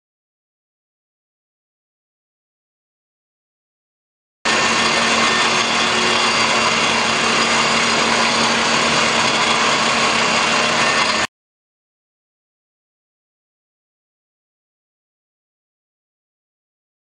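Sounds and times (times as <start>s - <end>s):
electric motor whirring: 4.5s - 11.3s.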